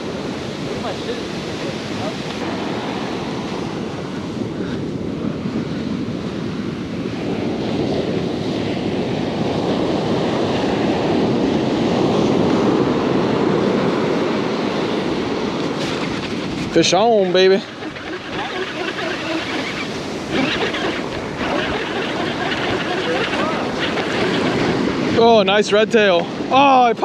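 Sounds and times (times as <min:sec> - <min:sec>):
ocean surf breaking: 0:00.0 - 0:27.0.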